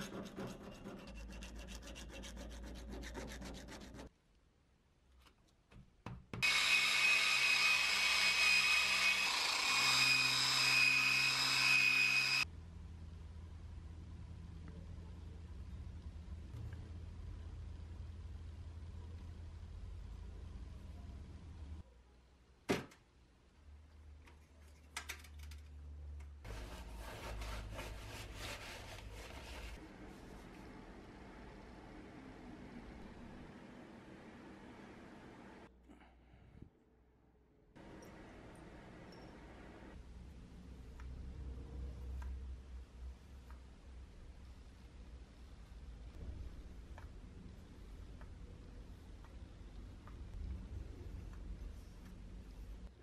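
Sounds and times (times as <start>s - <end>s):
power grinder whining on steel: 6.4s - 12.4s
paper towel rubbing on steel: 26.5s - 29.8s.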